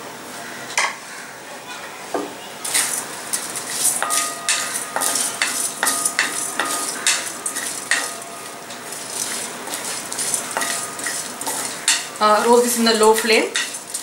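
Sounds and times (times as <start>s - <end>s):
wooden spatula scraping spices in pan: 2.6s - 14.0s
metal pan ringing faintly: 3.9s - 14.0s.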